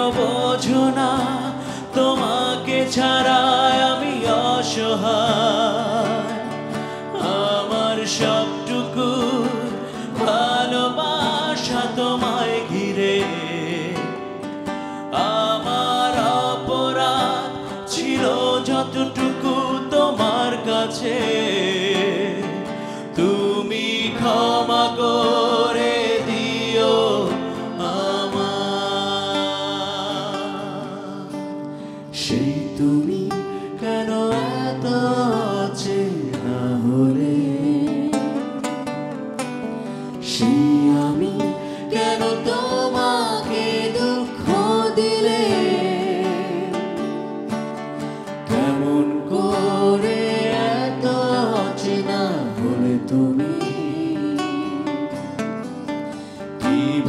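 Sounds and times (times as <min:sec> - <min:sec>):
acoustic guitars strummed and picked: 0:00.0 - 0:57.0
person singing long wavering notes: 0:40.0 - 0:47.4, 0:48.4 - 0:55.4, 0:56.6 - 0:57.0.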